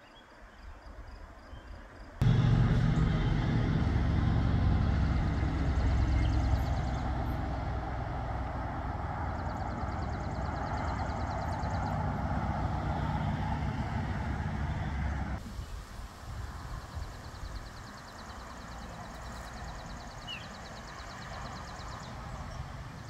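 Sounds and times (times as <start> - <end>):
diesel engine humming: 2.2 - 15.4.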